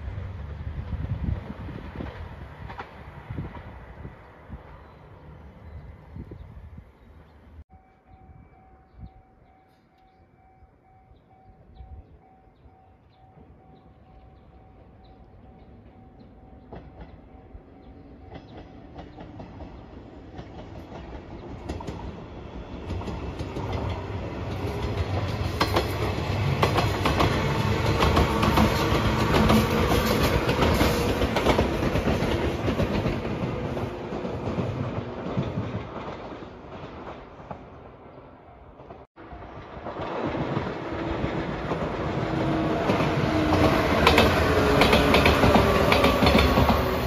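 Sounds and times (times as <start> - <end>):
electric train passing: 0.0 - 47.0
wheels clicking over rail joints: 15.6 - 38.0, 38.8 - 47.0.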